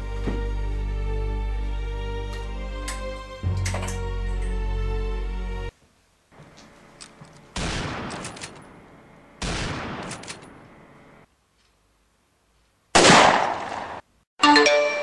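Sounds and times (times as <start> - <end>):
loud bangs: 7.6 - 8.7, 9.4 - 10.6.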